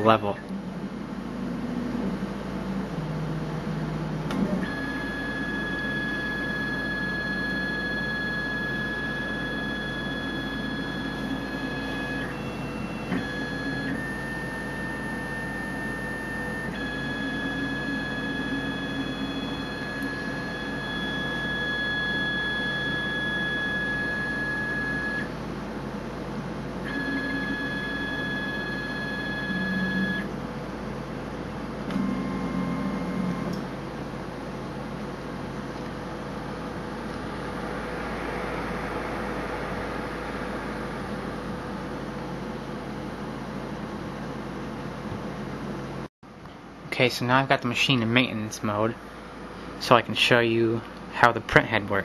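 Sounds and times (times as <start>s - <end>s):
steady machine hum: 0.0s - 52.0s
stepper motors whining: 0.5s - 25.3s, 26.8s - 30.3s, 31.9s - 33.7s.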